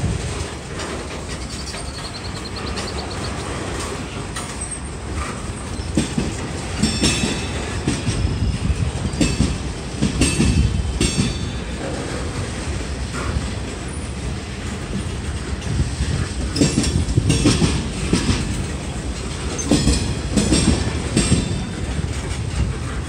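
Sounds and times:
freight train rumbling past: 0.0 - 23.0
wheels clacking over rail joints: 0.0 - 23.0.

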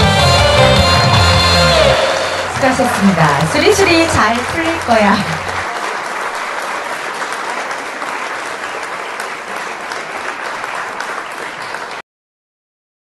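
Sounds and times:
audience applauding: 2.1 - 12.0.

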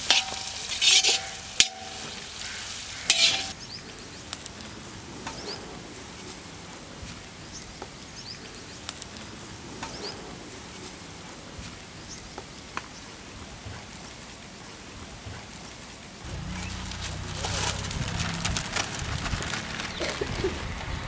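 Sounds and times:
metallic ringing: 0.0 - 2.2, 3.1 - 3.6
metal spatula scraping a wok: 0.0 - 3.6
sizzling hiss: 0.0 - 3.6.

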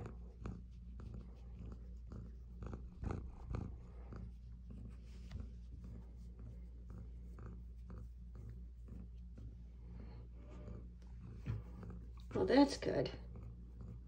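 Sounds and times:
cat purring: 0.0 - 14.0
hand brushing fur: 3.7 - 9.8.

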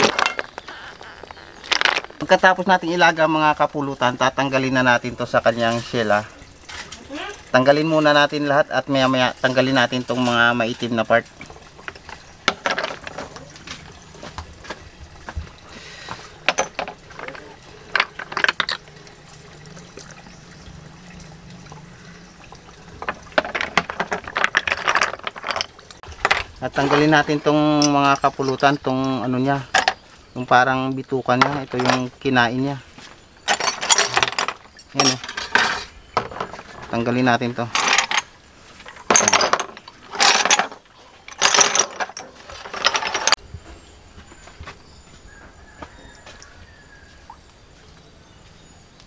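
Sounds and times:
snail shells clattering: 0.0 - 2.4, 16.4 - 19.2, 22.9 - 28.9.

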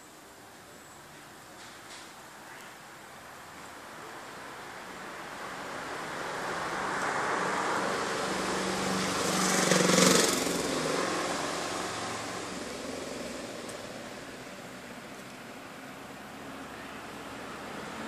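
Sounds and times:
vehicle engine passing by: 4.6 - 18.0.

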